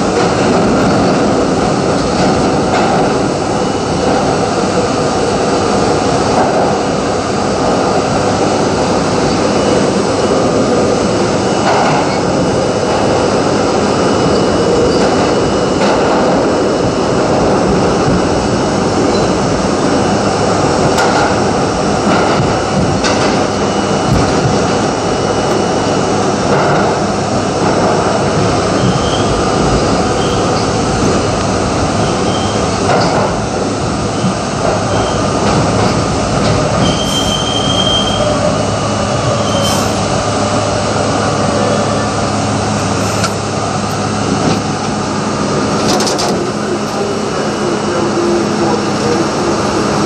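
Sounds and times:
subway train wheels rumbling on rail: 0:00.0 - 0:50.0
high wheel squeal: 0:14.0 - 0:15.2, 0:28.7 - 0:30.7, 0:32.0 - 0:32.8, 0:36.8 - 0:40.1.

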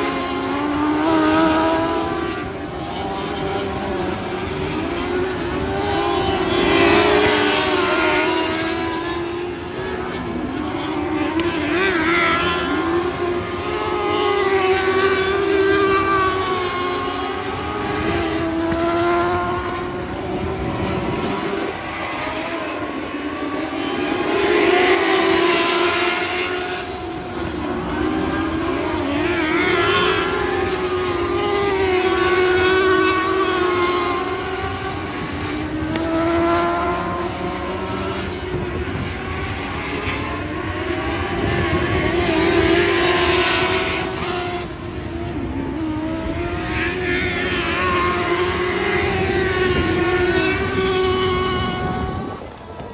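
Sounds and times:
racing engines revving: 0:00.0 - 0:52.9.

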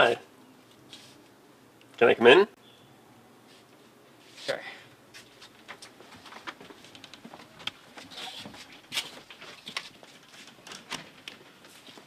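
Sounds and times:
footsteps: 0:05.1 - 0:12.0.

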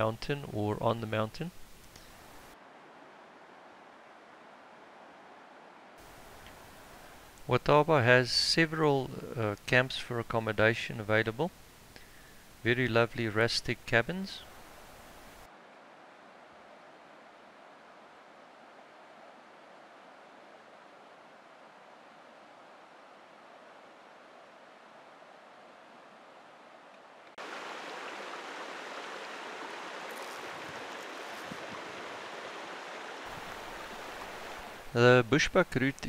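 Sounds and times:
stream running water: 0:00.0 - 0:05.2, 0:05.8 - 0:15.8, 0:27.2 - 0:36.0
faint outdoor hiss: 0:00.0 - 0:36.0.

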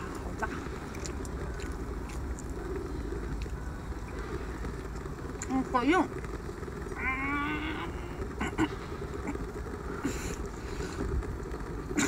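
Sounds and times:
steady low rumble: 0:00.0 - 0:12.0
person humming with mouth full: 0:07.0 - 0:08.2.

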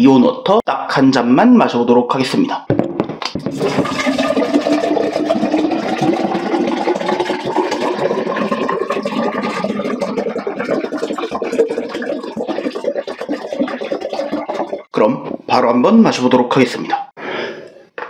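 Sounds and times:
liquid pouring into glass: 0:03.4 - 0:14.9.

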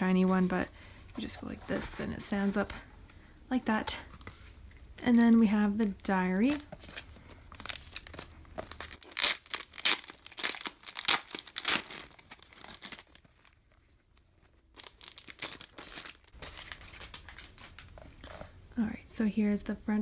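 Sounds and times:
plastic sleeve crinkling: 0:05.0 - 0:18.4.

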